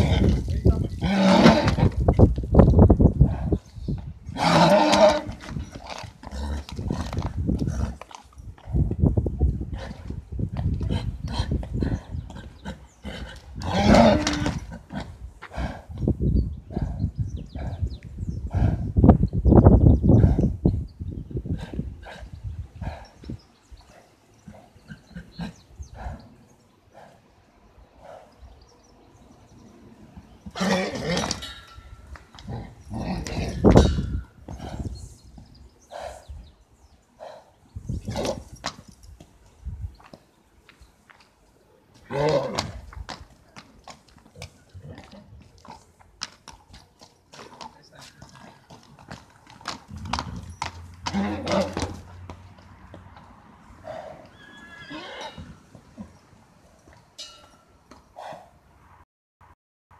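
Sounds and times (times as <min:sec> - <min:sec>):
horse squealing: 0:00.0 - 0:02.1, 0:04.3 - 0:07.1, 0:13.6 - 0:14.9, 0:30.5 - 0:34.4, 0:42.1 - 0:42.8, 0:49.9 - 0:52.1, 0:53.9 - 0:55.7
hooves stamping and shuffling: 0:00.0 - 0:58.9.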